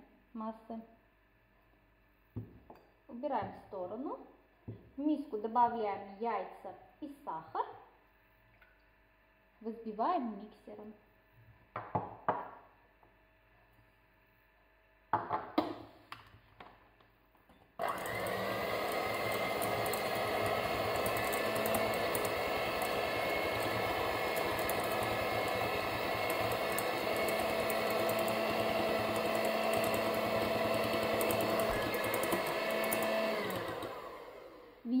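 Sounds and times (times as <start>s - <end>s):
electric hand mixer whisking: 17.8s - 34.8s.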